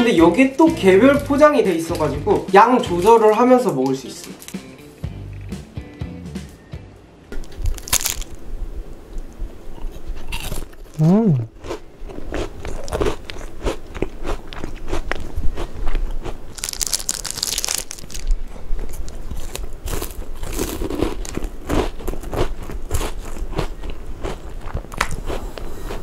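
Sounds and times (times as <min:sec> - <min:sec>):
crunching and chewing: 0:07.4 - 0:08.4, 0:09.1 - 0:26.0.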